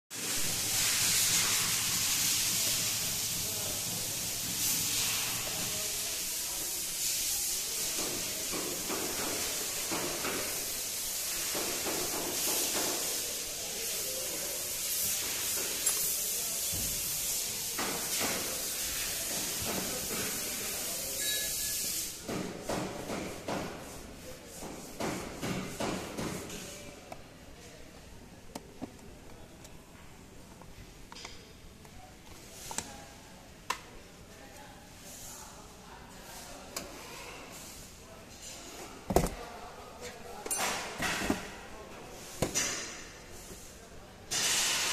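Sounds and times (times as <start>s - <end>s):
steady hiss: 0.1s - 22.4s, 42.6s - 44.9s.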